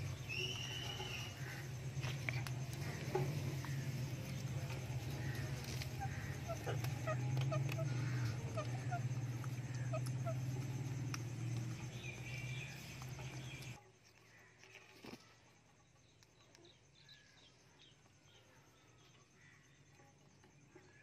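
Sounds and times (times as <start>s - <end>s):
steady low hum: 0.0s - 13.8s
parrots chirping and calling: 5.0s - 13.8s.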